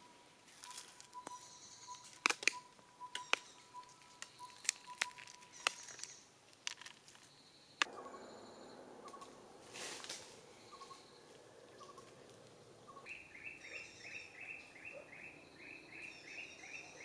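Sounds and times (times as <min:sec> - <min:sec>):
corn kernels clicking on wood: 0:02.0 - 0:07.9.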